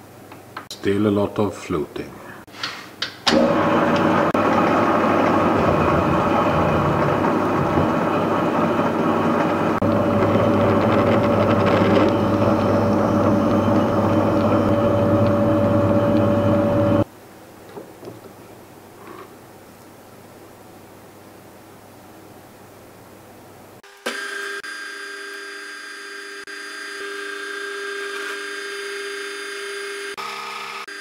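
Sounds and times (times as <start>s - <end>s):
metal lathe humming and whining: 3.3s - 17.1s, 23.9s - 31.0s.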